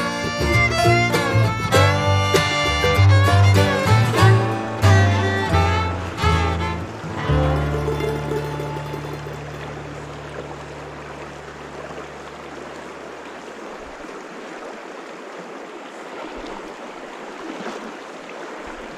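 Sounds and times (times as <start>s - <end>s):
stream running over rocks: 0.0s - 18.9s
low held music note: 1.7s - 11.4s.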